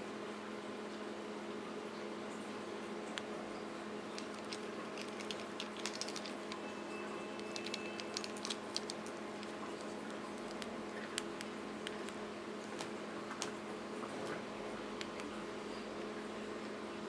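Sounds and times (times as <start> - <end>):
low electrical hum: 0.0 - 17.0
cat claws clicking on rug: 4.2 - 6.6, 7.4 - 13.6.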